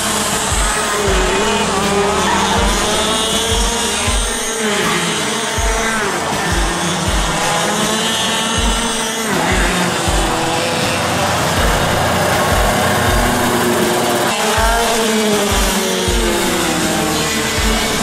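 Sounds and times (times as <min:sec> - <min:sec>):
deep thumps: 0:00.0 - 0:04.6, 0:05.6 - 0:07.6, 0:08.6 - 0:10.6, 0:11.6 - 0:13.8
kart engine running: 0:00.0 - 0:18.0.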